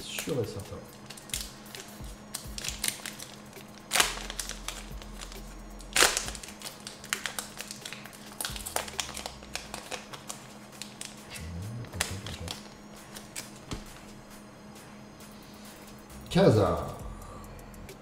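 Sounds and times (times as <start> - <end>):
foil wrapper crinkling: 0.0 - 11.4, 12.0 - 14.1.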